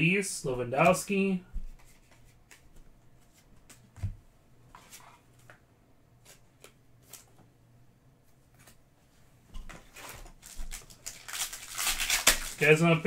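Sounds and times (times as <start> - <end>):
cards clicking and rustling: 9.7 - 13.0.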